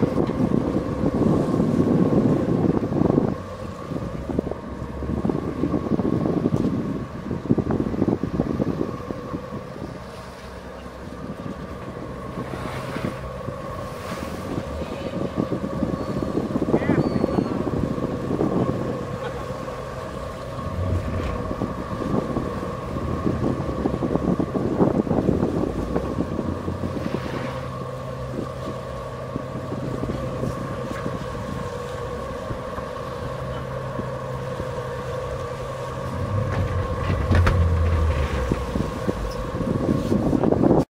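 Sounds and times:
boat engines humming: 0.0 - 40.9
wind buffeting microphone: 0.0 - 40.9.

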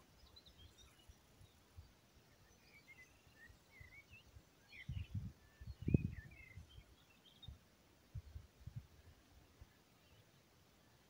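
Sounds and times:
small birds chirping: 0.0 - 11.0
wind buffeting microphone: 4.8 - 6.6.

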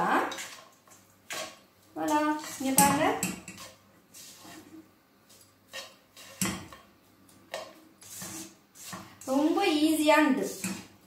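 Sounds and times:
spatula scraping frying pan: 0.0 - 6.9, 7.5 - 9.7.

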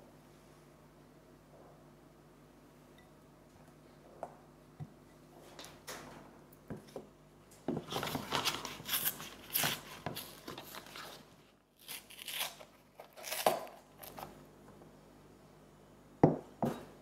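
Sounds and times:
paper carton tearing open: 7.9 - 11.2, 11.8 - 14.2.

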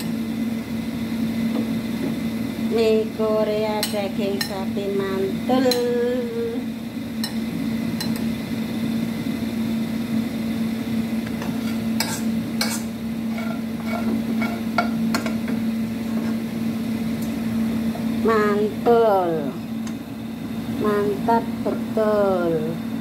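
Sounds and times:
low steady hum: 0.0 - 23.0
metal spoon scraping a wok: 11.4 - 14.7.

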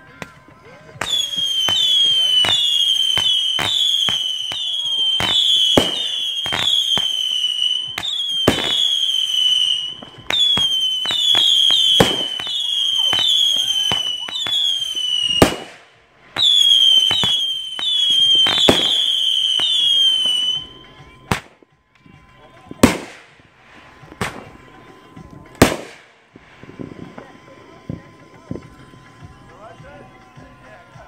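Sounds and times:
fireworks popping and banging: 0.0 - 31.0
fireworks whistling: 0.0 - 31.0.

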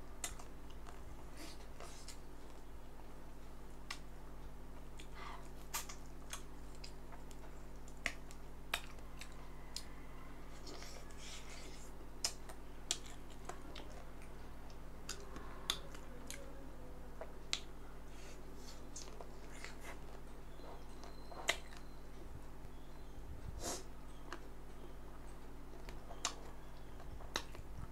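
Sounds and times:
wet chewing: 4.9 - 16.5, 25.7 - 27.9
lip and tongue smacks: 5.0 - 7.0, 12.2 - 14.0, 27.2 - 27.6.

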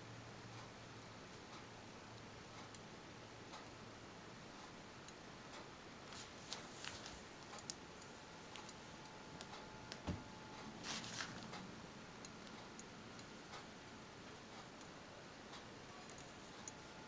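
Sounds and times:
soft thump: 10.0 - 10.3.

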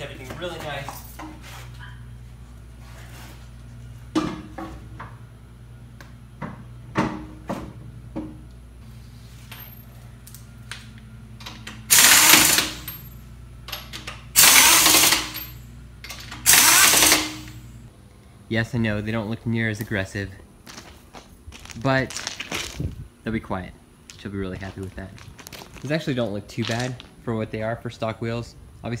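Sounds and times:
pneumatic impact wrench hammering: 11.4 - 13.0, 13.7 - 17.7.

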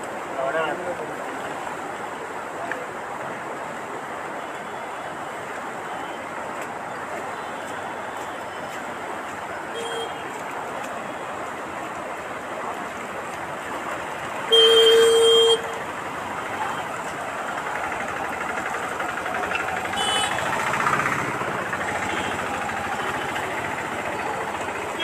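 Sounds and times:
floodwater rushing: 0.0 - 25.0
horn blaring: 19.8 - 20.9.

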